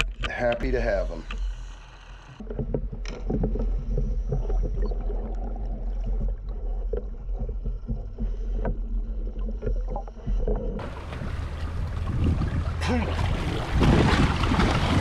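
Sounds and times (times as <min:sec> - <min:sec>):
underwater clicks and crackles: 0:00.0 - 0:12.8
muffled underwater rumble: 0:00.0 - 0:15.0
wind on microphone: 0:10.8 - 0:15.0.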